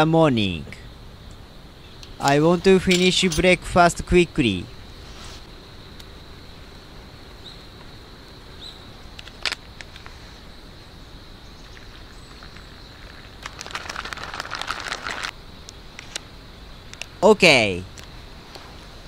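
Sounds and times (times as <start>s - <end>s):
plastic pouch crinkling: 12.4s - 15.4s.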